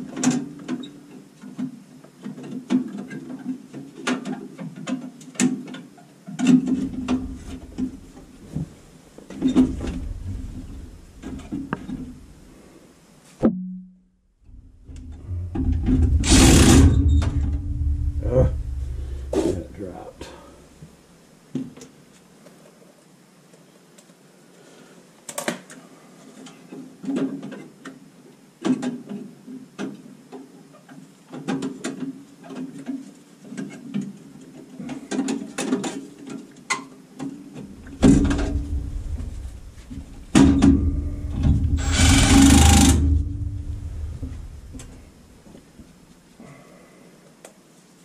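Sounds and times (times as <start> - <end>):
cordless driver running: 16.0 - 17.1, 41.3 - 45.0.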